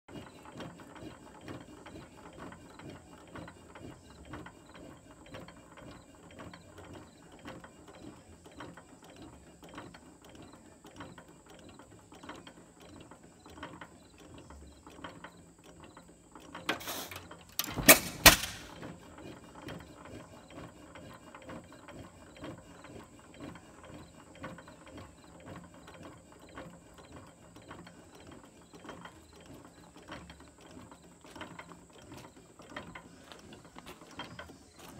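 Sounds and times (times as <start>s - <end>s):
engine clicking while coasting: 0.1s - 34.9s
engine firing with sharp bangs: 16.7s - 18.8s.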